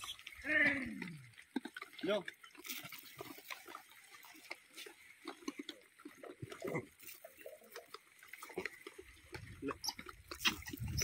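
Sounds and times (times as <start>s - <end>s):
monkeys grunting and squabbling: 9.6s - 11.0s.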